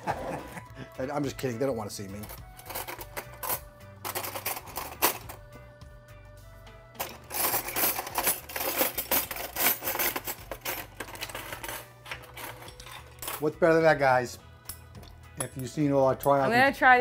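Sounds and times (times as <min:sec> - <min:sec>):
music with clicking percussion: 0:02.0 - 0:05.6.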